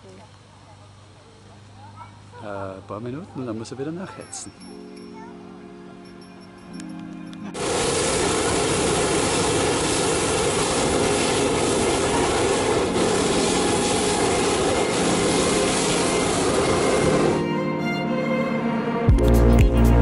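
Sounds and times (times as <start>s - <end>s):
propane burner firing: 7.6s - 17.4s.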